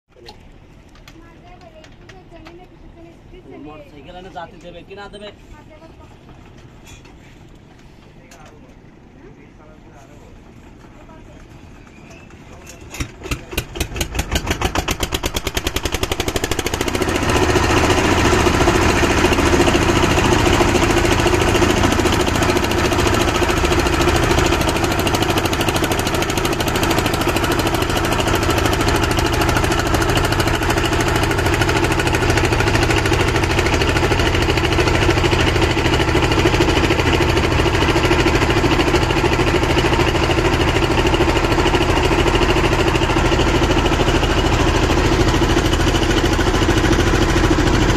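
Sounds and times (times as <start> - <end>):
boat engine chugging: 0.1 - 47.9.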